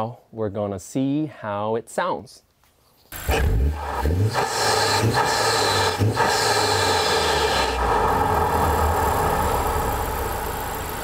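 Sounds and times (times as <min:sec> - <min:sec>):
car engine revving and idling: 0:03.2 - 0:11.0.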